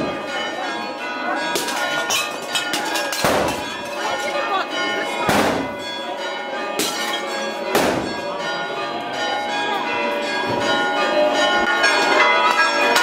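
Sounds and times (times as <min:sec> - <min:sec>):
church bells ringing: 0:00.0 - 0:13.0
sharp bangs: 0:01.5 - 0:04.2, 0:05.2 - 0:06.0, 0:06.8 - 0:08.4.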